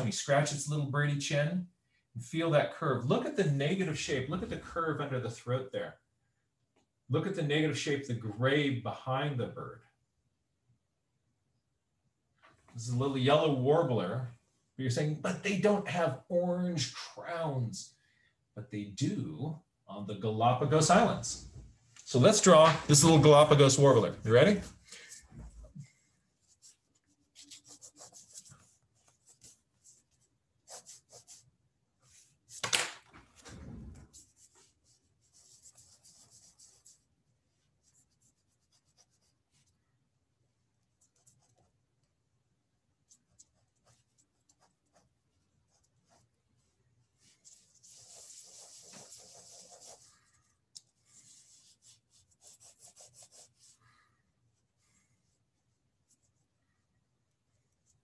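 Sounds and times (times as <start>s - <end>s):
pencil sketching on paper: 26.4s - 32.6s, 34.1s - 39.8s, 40.8s - 41.8s, 43.0s - 53.8s.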